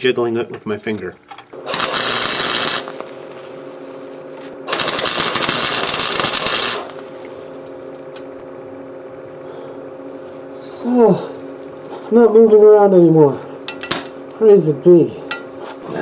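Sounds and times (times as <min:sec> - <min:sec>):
steady hum: 0:00.0 - 0:16.0
electric arc welding crackling: 0:01.6 - 0:08.3.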